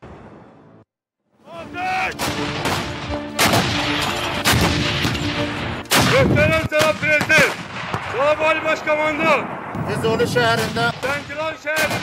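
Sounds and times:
gunshots: 2.2s - 8.6s, 10.4s - 12.0s.

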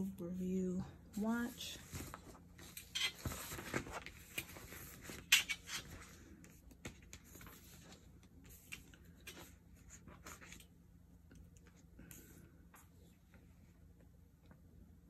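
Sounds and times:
paper rustling: 1.8s - 10.7s.

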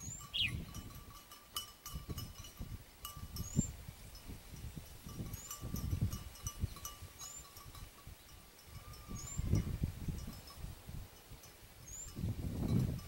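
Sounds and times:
high rising bird whistle: 0.0s - 0.7s.

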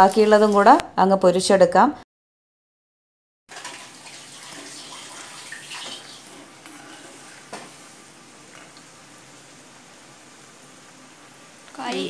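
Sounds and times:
oil sizzling and bubbling: 0.0s - 0.8s, 3.5s - 12.0s.

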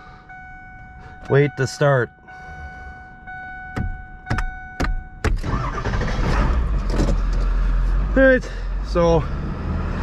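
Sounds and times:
steady high tone: 0.0s - 5.3s
diesel engine cranking and running: 5.2s - 9.5s.

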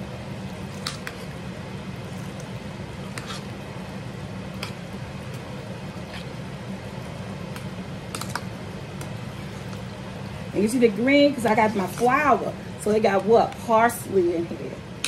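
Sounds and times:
wet squishing of stirred food: 0.0s - 10.5s
low steady hum: 0.0s - 15.0s.

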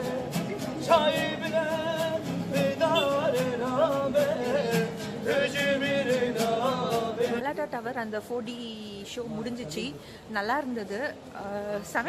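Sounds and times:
acoustic guitars strumming: 0.0s - 7.4s
man singing: 0.0s - 7.4s.

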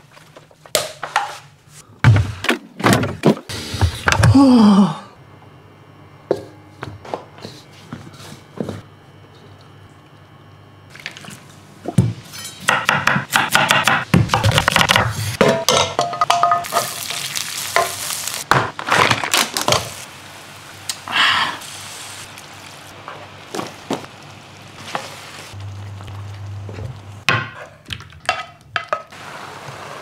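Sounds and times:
food sizzling in a pan: 16.6s - 18.5s, 19.3s - 27.2s, 29.1s - 30.0s.

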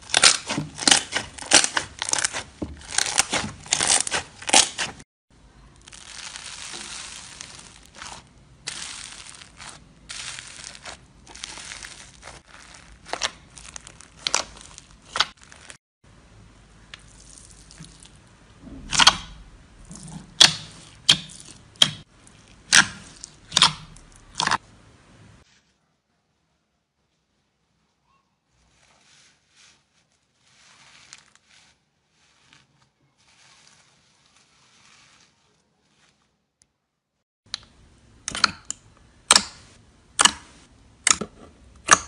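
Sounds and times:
foam-bead slime popping: 0.0s - 5.0s, 5.8s - 15.8s
slime squelching: 0.0s - 15.8s, 16.8s - 24.6s.

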